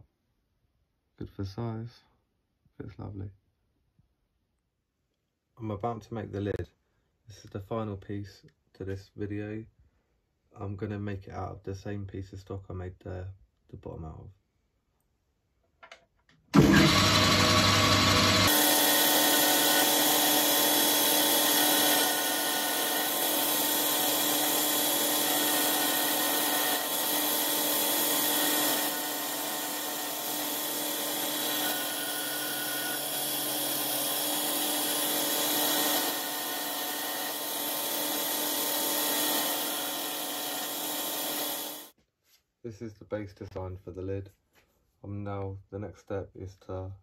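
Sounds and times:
lathe whirring: 16.6 - 41.9
tool cutting hiss: 16.6 - 41.9.

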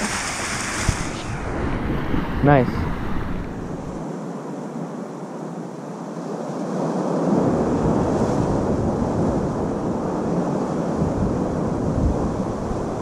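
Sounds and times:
ocean surf washing against rocks: 0.0 - 4.0
wind blowing on microphone: 0.0 - 4.0, 7.0 - 13.0.

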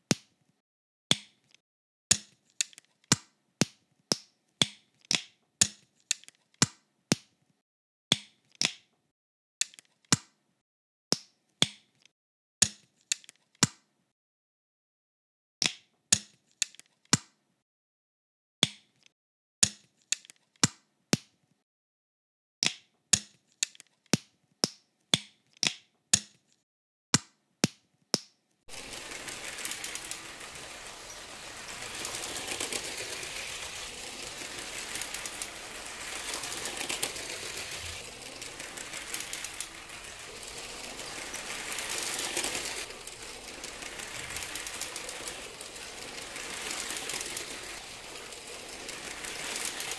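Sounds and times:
plastic bricks clicking into place: 1.1 - 7.2, 9.6 - 10.3, 11.1 - 13.8, 15.6 - 17.3, 18.6 - 21.3, 22.6 - 26.6
toy train rattling on plastic track: 28.7 - 49.9.

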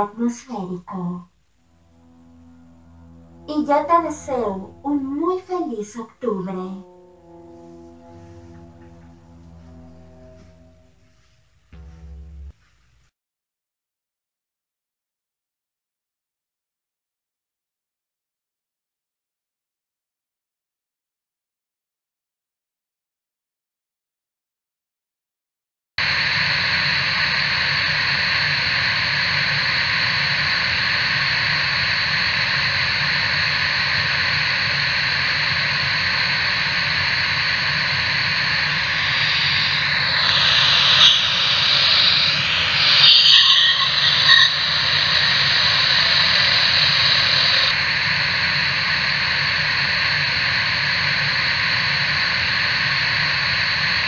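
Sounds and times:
loud static hiss: 0.0 - 12.5, 26.0 - 54.0
wavering sweeping sounds: 0.0 - 12.5, 35.2 - 47.8.

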